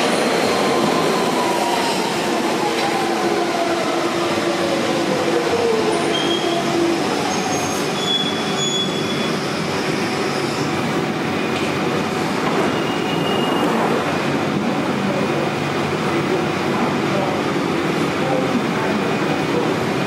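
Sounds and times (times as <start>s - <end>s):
train rumbling into platform: 0.0s - 20.0s
high-pitched wheel squeals: 6.1s - 10.7s, 12.7s - 13.8s.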